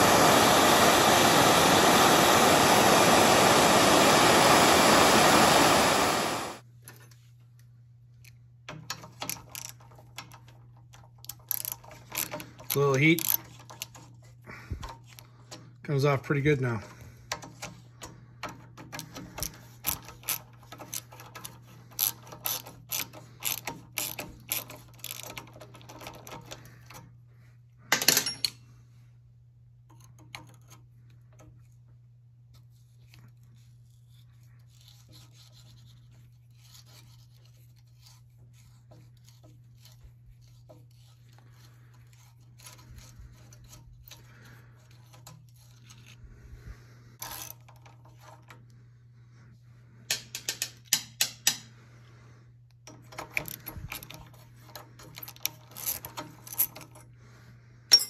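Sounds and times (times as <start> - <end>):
steady low hum: 0.0 - 58.0
metal tools clicking and clinking: 8.2 - 15.2, 27.9 - 28.6, 52.8 - 57.1.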